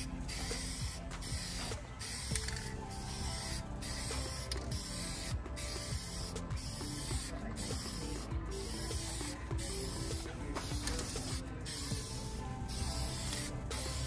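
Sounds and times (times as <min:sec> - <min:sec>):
spray paint hissing: 0:00.0 - 0:14.0.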